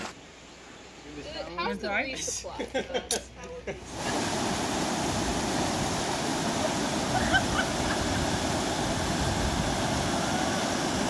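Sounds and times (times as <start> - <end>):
river water rushing: 3.8 - 11.0.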